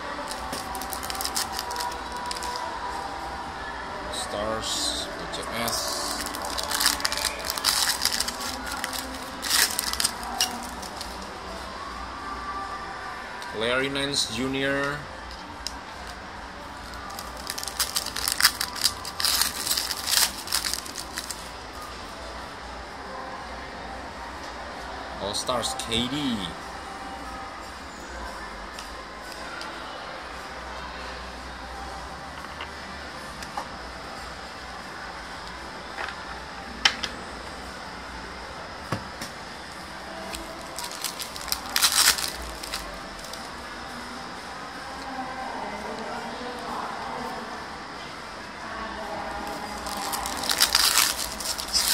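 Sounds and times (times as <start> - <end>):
foil wrapper tearing and crinkling: 0.2 - 2.6, 5.6 - 11.2, 16.9 - 21.5, 40.3 - 43.4, 49.5 - 51.9.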